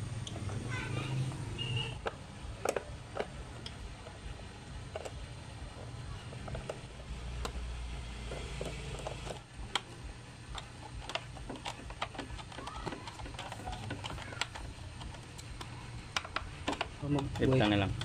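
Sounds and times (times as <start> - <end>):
low steady hum: 0.0 - 18.0
screwdriver clicking on plastic: 10.5 - 18.0.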